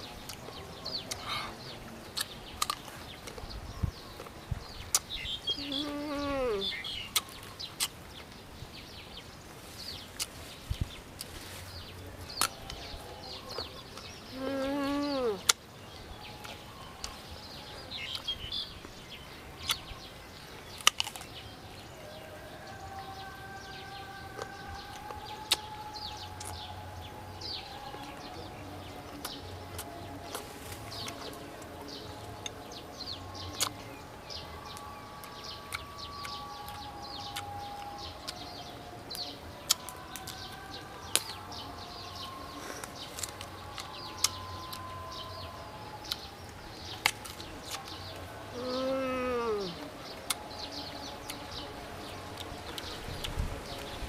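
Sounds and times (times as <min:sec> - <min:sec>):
crisp biting and chewing: 0:02.1 - 0:03.6, 0:07.0 - 0:08.3, 0:20.7 - 0:21.4, 0:24.4 - 0:26.7, 0:29.1 - 0:32.6, 0:33.4 - 0:33.8, 0:39.2 - 0:48.2.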